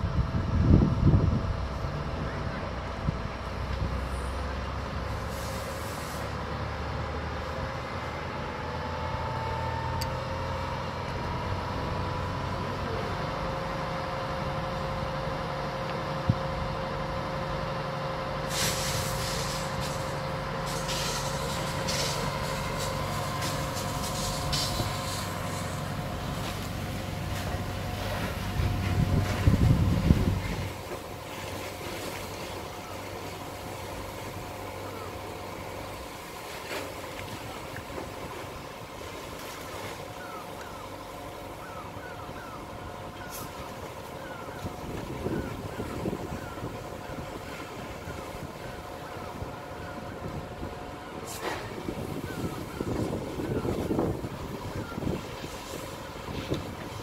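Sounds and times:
large vehicle engine running: 0.0 - 57.0
fire crackling and hissing: 5.0 - 6.4, 18.3 - 40.1, 43.2 - 57.0
low rumble: 19.0 - 31.4.

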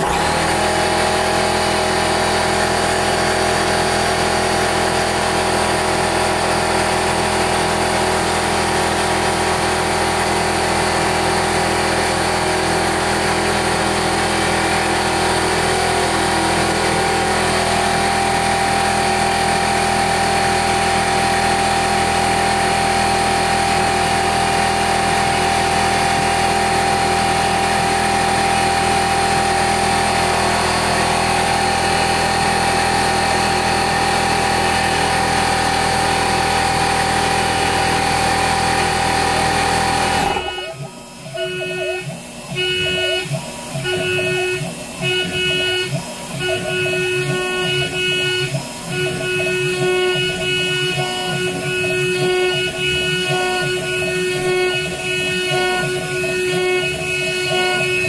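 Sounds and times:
router spindle whining: 0.0 - 58.0.

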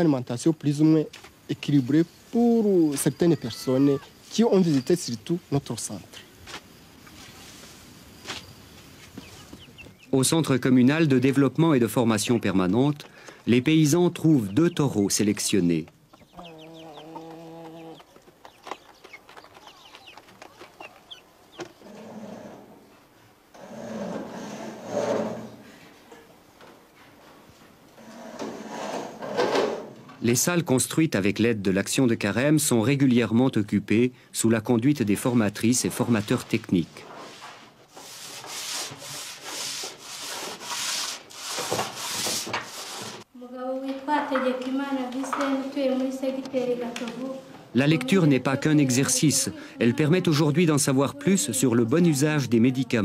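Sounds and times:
chicks cheeping: 8.9 - 10.1, 14.2 - 21.8
hen clucking: 14.2 - 22.0
sandpaper rubbing on wood: 37.2 - 43.2.

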